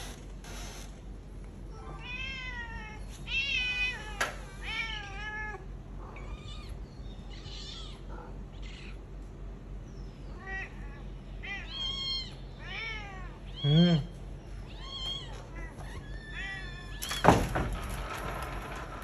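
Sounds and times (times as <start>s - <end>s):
cat meowing: 1.7s - 9.0s, 10.3s - 17.2s.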